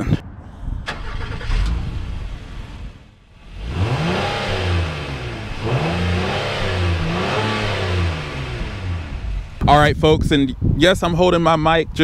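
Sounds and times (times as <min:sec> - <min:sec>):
car engine revving: 0:00.8 - 0:09.9.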